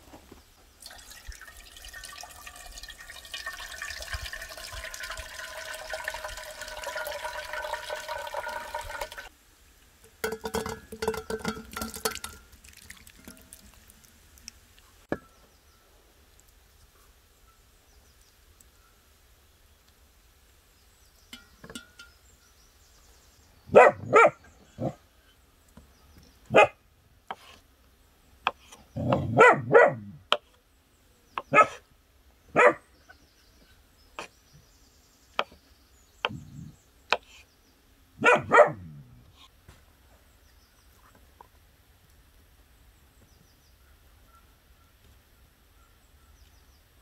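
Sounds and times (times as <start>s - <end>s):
dog barking: 23.7s - 25.0s, 26.5s - 26.8s, 29.0s - 30.2s, 31.5s - 31.8s, 32.5s - 32.8s, 38.2s - 38.9s.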